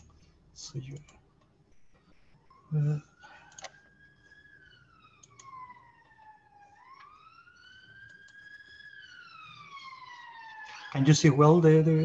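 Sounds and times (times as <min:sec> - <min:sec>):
emergency vehicle siren wailing: 0:02.0 - 0:12.0.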